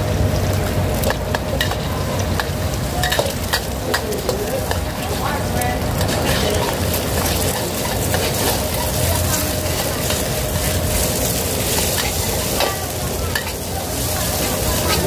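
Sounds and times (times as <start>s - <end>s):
spatula scraping wok: 1.0s - 15.0s
egg sizzling in oil: 5.8s - 15.0s.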